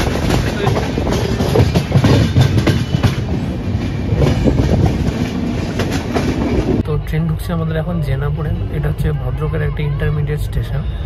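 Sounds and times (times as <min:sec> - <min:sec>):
train wheels clattering over track: 0:00.0 - 0:06.8.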